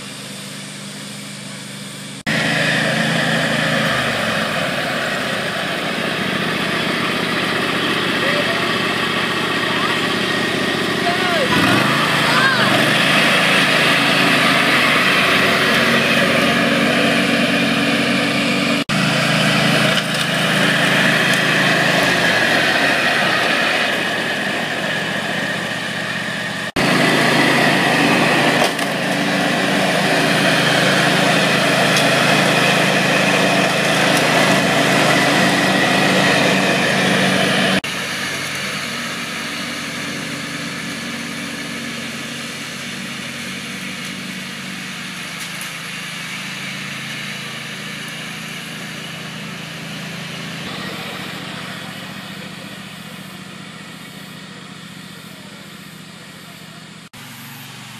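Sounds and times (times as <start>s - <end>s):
ride-on mower engine running: 0.0s - 57.9s.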